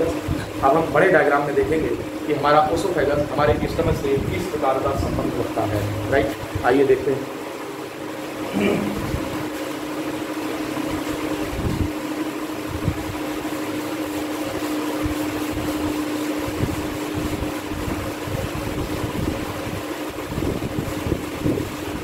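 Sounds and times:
room hum: 0.0s - 22.0s
cloth duster rubbing chalkboard: 13.3s - 18.0s.

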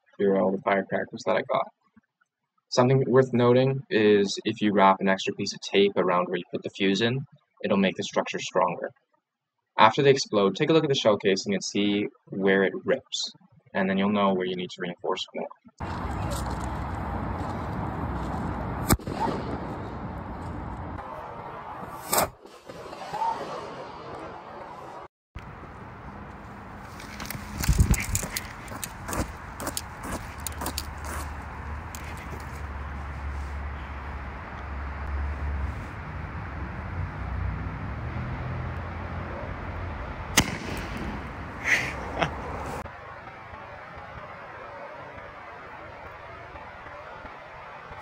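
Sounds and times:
low outdoor rumble: 15.8s - 21.9s
firecrackers exploding: 18.8s - 24.9s, 40.3s - 41.8s.

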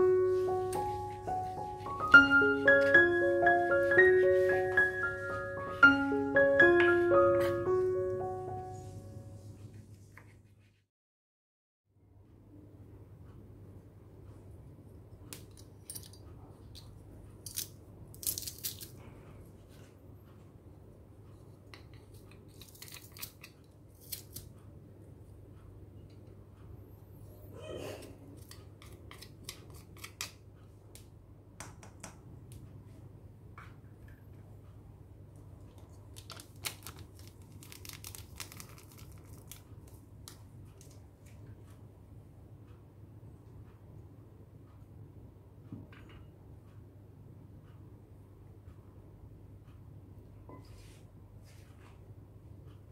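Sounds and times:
low steady hum: 0.0s - 10.7s
plastic container crinkling: 36.1s - 40.0s.

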